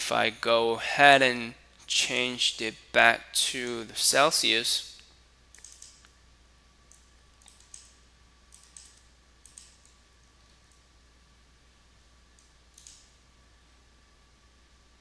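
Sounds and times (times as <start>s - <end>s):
mouse and keyboard clicks: 5.5s - 6.1s, 6.9s - 10.0s, 12.4s - 13.2s.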